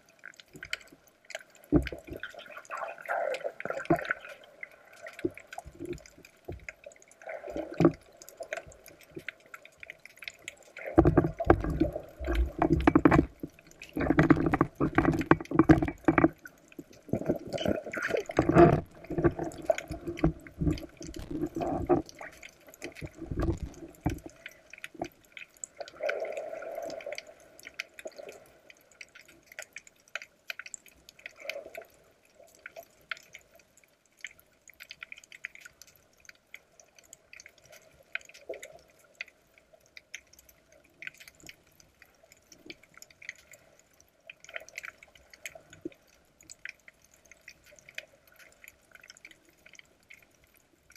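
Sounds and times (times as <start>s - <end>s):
underwater crackling and ticking: 0.0s - 50.9s
underwater sloshing and bubbling: 0.0s - 50.9s.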